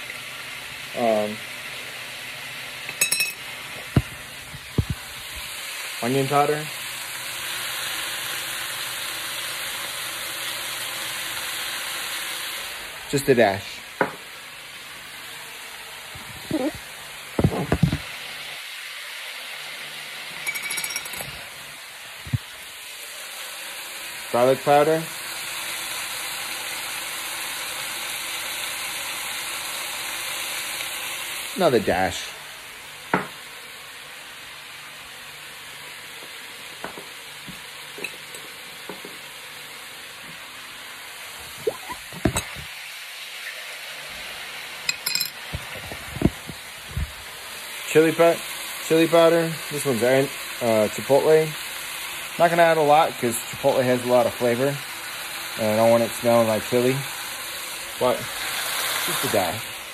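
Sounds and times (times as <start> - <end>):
meat and onions sizzling: 0.0 - 59.9
clinking rattle: 20.4 - 21.4, 44.9 - 45.4.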